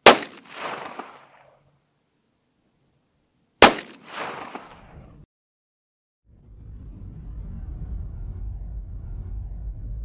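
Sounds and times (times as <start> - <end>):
pistol shot with echo: 0.0 - 1.5, 3.6 - 5.0.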